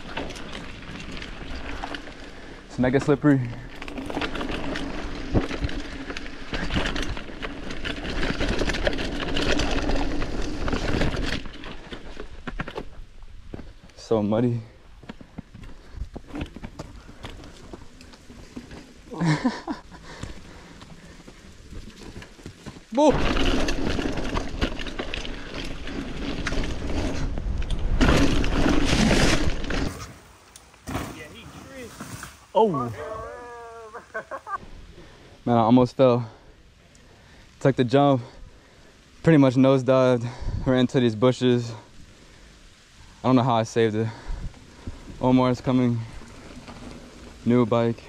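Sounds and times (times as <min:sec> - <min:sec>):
bike rattling and knocking: 0:00.0 - 0:13.8, 0:15.0 - 0:29.9
bike tyres through mud: 0:00.0 - 0:48.0
bike crashing into bushes: 0:23.0 - 0:32.5.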